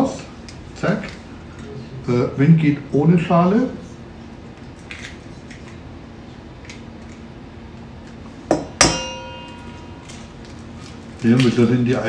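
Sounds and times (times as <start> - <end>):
egg knocking against ringing bowl: 8.5 - 10.3.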